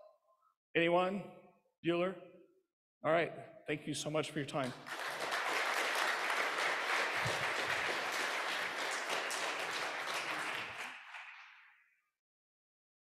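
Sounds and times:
audience applauding: 4.6 - 11.7.

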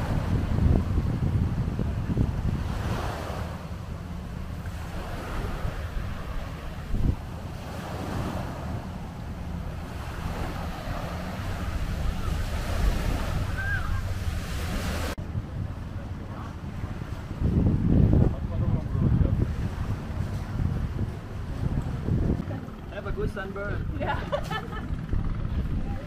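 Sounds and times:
small waves washing on sand: 0.0 - 15.3
wind buffeting microphone: 0.0 - 26.0.

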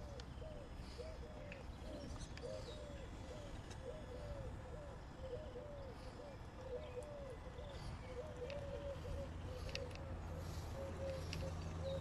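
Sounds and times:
bird calling low arching notes: 0.0 - 12.0.

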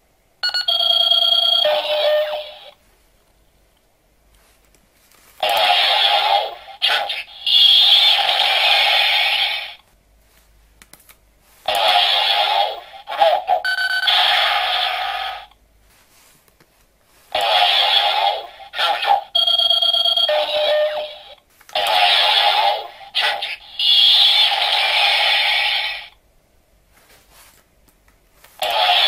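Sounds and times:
toy belt electronic sound effects: 0.4 - 2.7, 5.4 - 9.8, 11.7 - 15.5, 17.4 - 26.1, 28.6 - 29.0.

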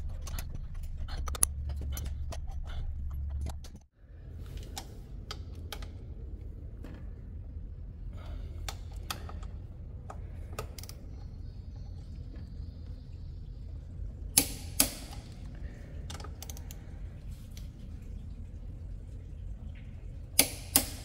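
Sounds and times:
metallic clicks of tools: 0.0 - 3.9.

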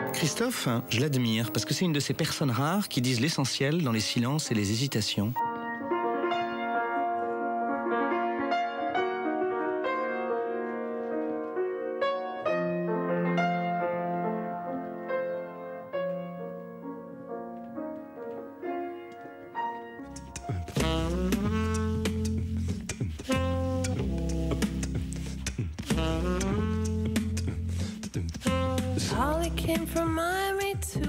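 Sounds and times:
slow piano music: 0.0 - 25.3.

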